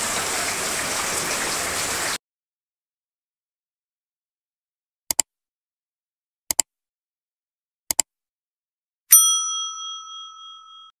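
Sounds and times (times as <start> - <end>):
notification bell ding: 9.1 - 11.0.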